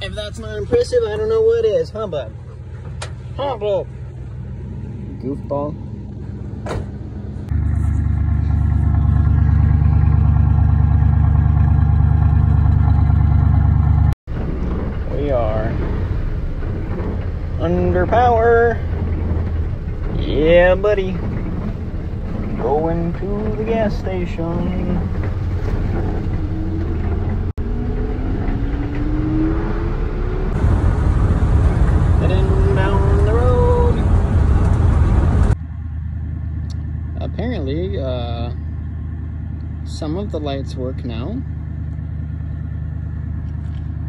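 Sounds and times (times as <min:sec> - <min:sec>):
pickup truck engine rumbling: 0:00.0 - 0:44.0
pickup truck engine idling: 0:35.6 - 0:44.0.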